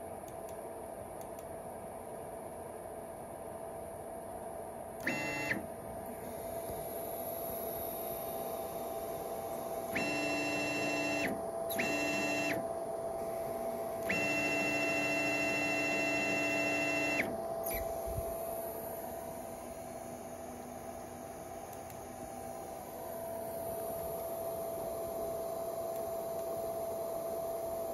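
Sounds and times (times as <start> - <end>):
faint steady hum: 0.0 - 27.9
stepper motors whining: 14.0 - 18.3.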